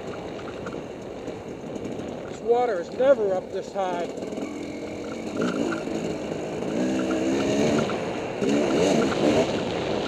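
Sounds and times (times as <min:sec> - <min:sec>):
dirt bike engine revving: 0:03.8 - 0:10.0.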